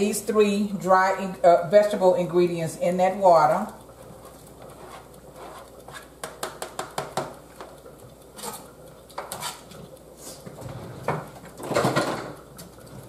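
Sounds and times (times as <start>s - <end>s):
spoon scraping cutting board: 4.3s - 6.2s, 8.4s - 9.8s
sharp clicks and knocks: 5.6s - 7.9s.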